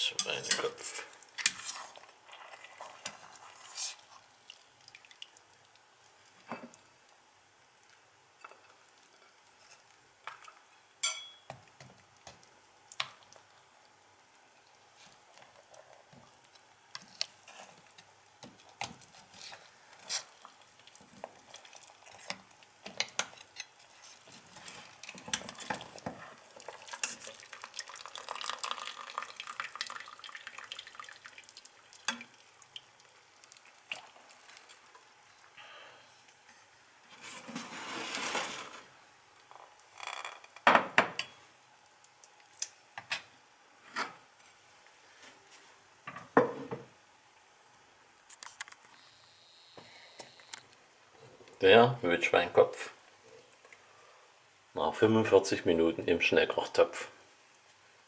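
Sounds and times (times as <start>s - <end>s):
metal fork scraping a pot: 0.2s - 4.0s
broth dripping and splashing: 2.1s - 7.2s, 16.0s - 35.6s.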